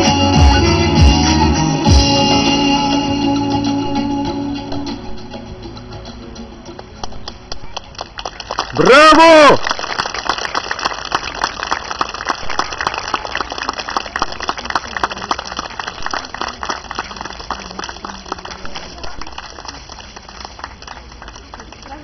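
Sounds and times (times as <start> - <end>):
audience applauding: 7.2 - 22.0.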